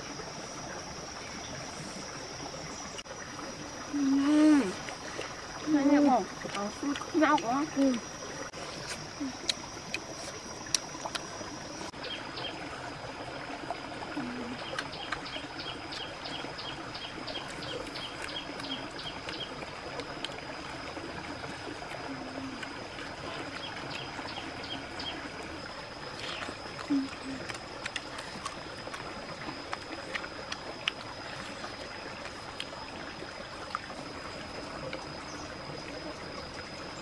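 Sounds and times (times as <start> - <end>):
stream water running: 0.0 - 37.0.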